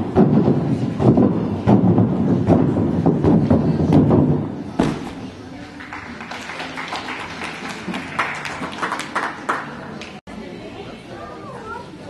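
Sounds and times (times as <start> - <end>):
gymnast thudding on tumbling track: 0.0 - 5.4
low murmur of voices: 0.0 - 12.0.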